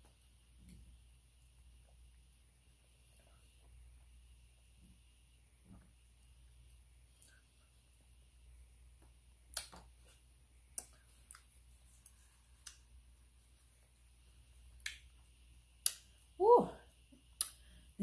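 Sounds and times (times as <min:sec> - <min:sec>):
mouth clicks and smacks chewing: 0:09.5 - 0:09.9, 0:10.7 - 0:12.9.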